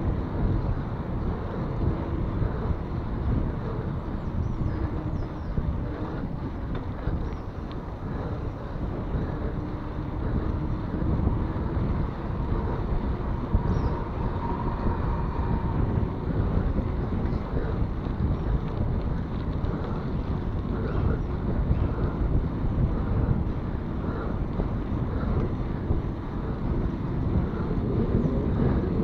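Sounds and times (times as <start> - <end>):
tyres on asphalt: 0.0 - 29.0
wind buffeting microphone: 0.0 - 29.0.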